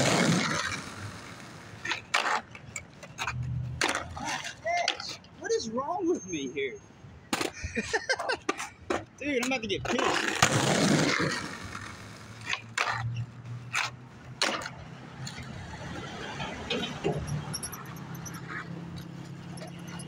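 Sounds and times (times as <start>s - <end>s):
skateboard clacking on pavement: 0.0s - 5.2s, 8.4s - 13.1s, 13.7s - 15.4s.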